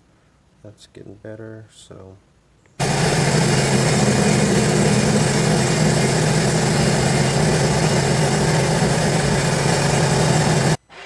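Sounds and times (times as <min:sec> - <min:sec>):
watercraft engine idling: 0:02.8 - 0:10.8.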